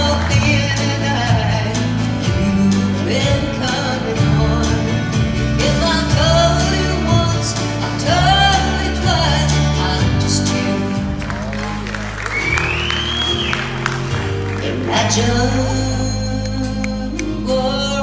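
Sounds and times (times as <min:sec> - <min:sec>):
woman singing: 0:00.0 - 0:11.0, 0:14.6 - 0:18.0
acoustic guitar: 0:00.0 - 0:18.0
electric bass: 0:00.0 - 0:18.0.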